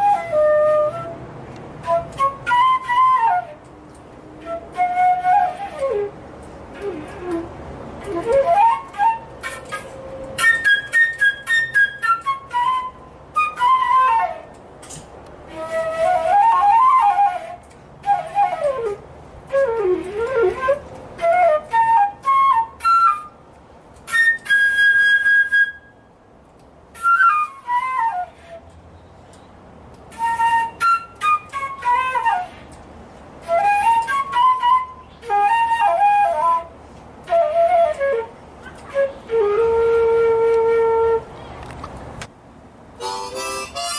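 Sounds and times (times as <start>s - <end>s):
flute playing quick phrases: 1.8s - 3.7s, 6.7s - 14.6s, 33.4s - 41.3s, 43.0s - 43.9s.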